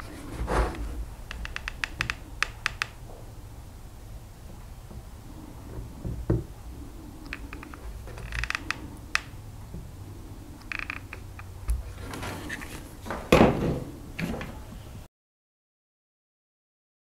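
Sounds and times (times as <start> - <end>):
nozzle scraping plastic: 0.0 - 3.0, 11.0 - 13.2.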